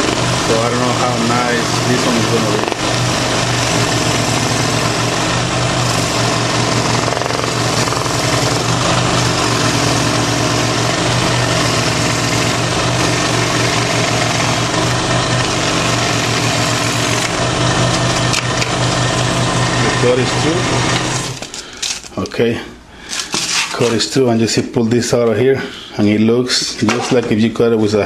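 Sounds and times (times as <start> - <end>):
blade chatter: 0.0 - 22.0
scroll saw running: 0.0 - 22.1.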